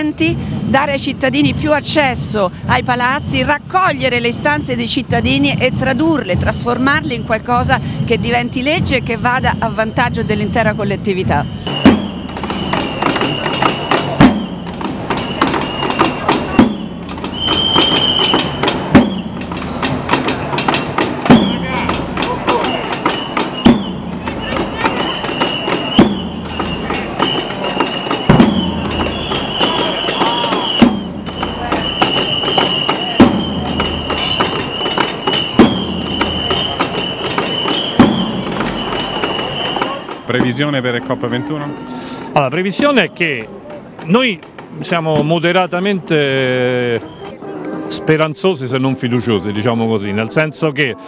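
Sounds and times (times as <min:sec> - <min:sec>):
street percussion: 0:00.0 - 0:51.0
whistle blowing: 0:06.7 - 0:20.0, 0:20.6 - 0:40.5, 0:46.8 - 0:47.4
quick drum stick strokes: 0:11.6 - 0:40.8.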